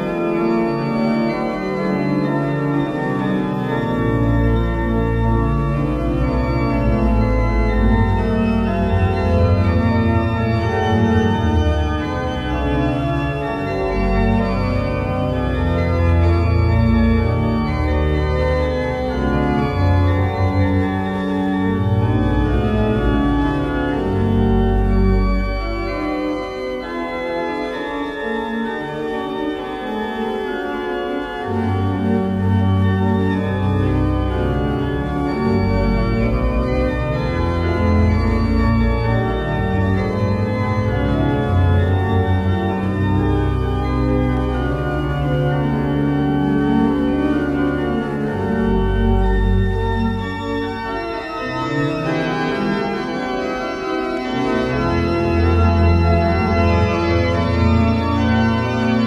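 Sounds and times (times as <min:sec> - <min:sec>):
deep organ bass pedal notes: 0:00.0 - 0:59.0
pipe organ chords: 0:00.0 - 0:59.0.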